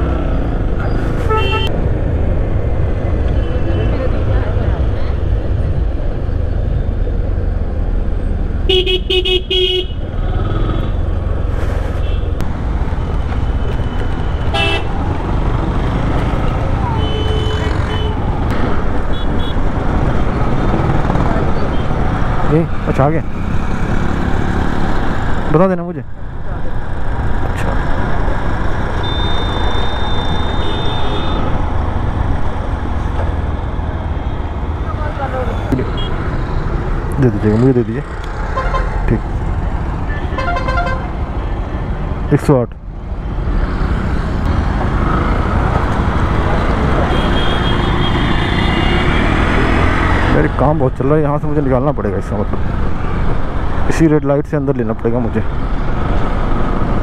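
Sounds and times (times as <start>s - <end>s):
motorcycle road noise: 0.0s - 57.0s
vehicle horn beeps: 1.3s - 1.7s, 29.0s - 31.5s
motorcycle engine: 12.2s - 25.5s.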